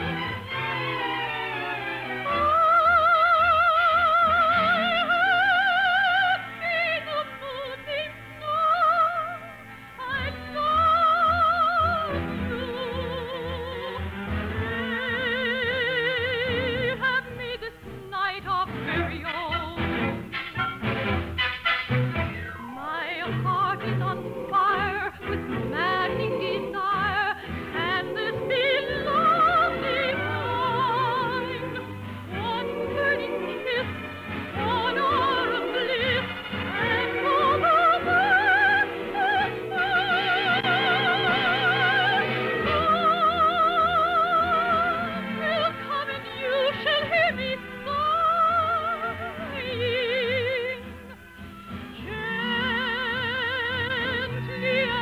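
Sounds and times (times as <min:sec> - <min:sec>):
orchestral accompaniment: 0:00.0 - 0:08.7, 0:18.8 - 0:49.8
operetta singing with vibrato: 0:00.0 - 0:20.8, 0:21.4 - 0:55.0.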